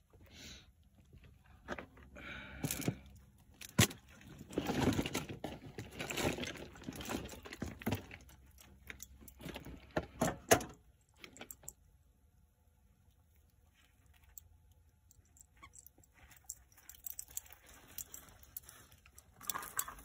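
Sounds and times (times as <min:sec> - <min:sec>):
puppies scuffling and scratching: 0:15.3 - 0:20.0.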